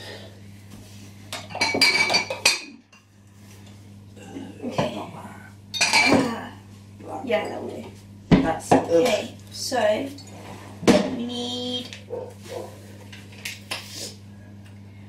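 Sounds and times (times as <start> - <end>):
low steady hum: 0.0 - 15.0
kitchenware clattering: 1.3 - 3.1, 5.7 - 6.5.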